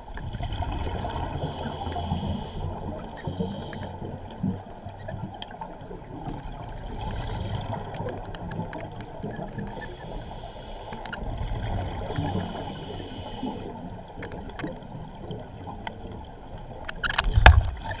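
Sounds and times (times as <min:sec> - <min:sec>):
regulator hissing inhalations: 0:01.3 - 0:04.0, 0:07.0 - 0:07.8, 0:09.7 - 0:11.0, 0:12.1 - 0:13.7.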